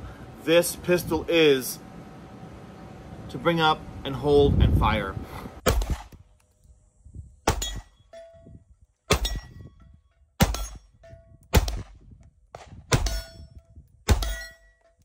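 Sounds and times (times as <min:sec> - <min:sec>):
pistol shots: 0:05.6 - 0:06.2, 0:11.5 - 0:13.2
steel target plate ringing: 0:07.5 - 0:11.4, 0:12.9 - 0:15.0.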